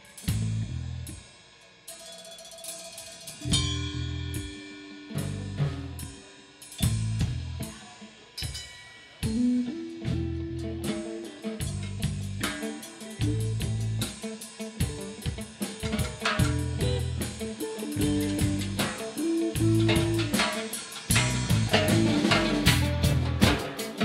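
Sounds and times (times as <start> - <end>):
bass guitar: 0.0 - 1.3, 3.4 - 7.8, 9.2 - 24.0
drum kit with cymbal crashes: 0.0 - 24.0
electric guitar: 3.4 - 8.6, 9.2 - 24.0.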